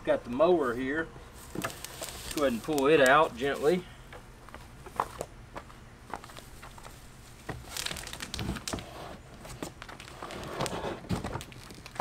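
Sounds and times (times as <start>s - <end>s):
cardboard box rustling and scraping: 8.3s - 11.4s.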